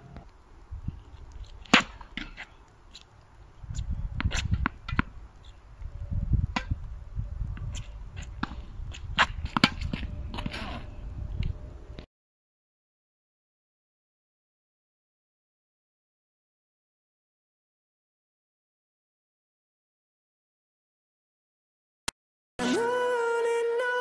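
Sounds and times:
tennis balls struck by rackets: 1.7s - 2.5s, 4.2s - 5.2s, 6.5s - 6.8s, 7.7s - 10.7s.

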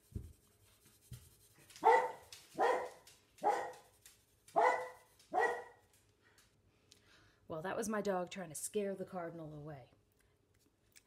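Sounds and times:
dog barking: 1.8s - 3.9s, 4.6s - 5.8s.

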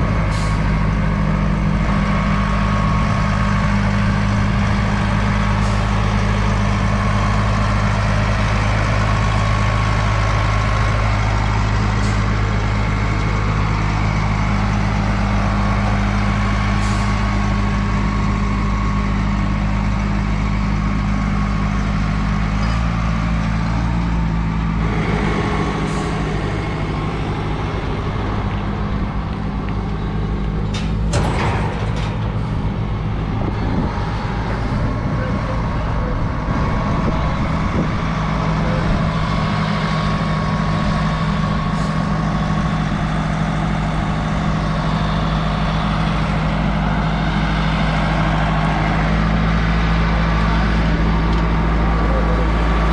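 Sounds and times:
diesel engine under load: 0.0s - 52.9s.

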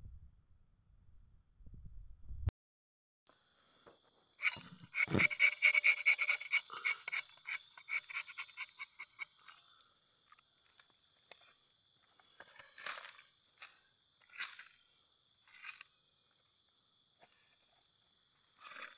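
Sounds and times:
crickets chirring: 3.3s - 18.9s
knife scraping tree bark: 4.4s - 9.7s, 18.6s - 18.9s.

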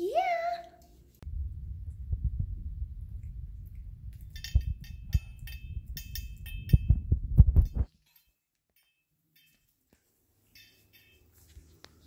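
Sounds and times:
cat chewing and lapping: 3.1s - 5.4s
metal tags clinking on bowl: 4.2s - 11.8s.

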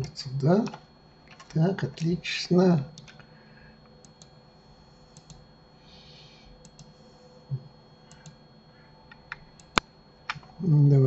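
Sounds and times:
computer mouse and keyboard clicks: 5.1s - 5.4s.

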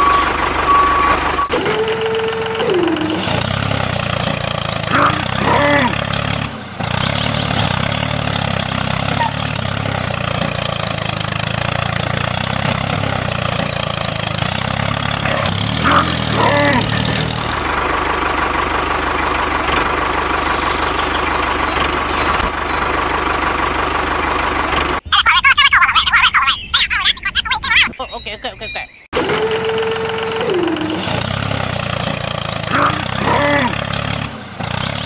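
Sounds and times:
tractor engine running: 0.0s - 35.0s
voice-like call: 1.5s - 3.4s, 4.9s - 6.0s, 25.1s - 31.3s, 32.7s - 33.8s.

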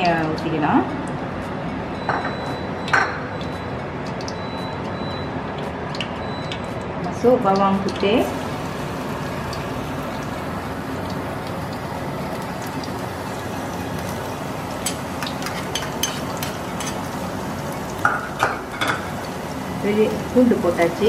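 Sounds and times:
oil popping and crackling: 7.6s - 21.0s
garlic sizzling in hot oil: 7.8s - 21.0s.

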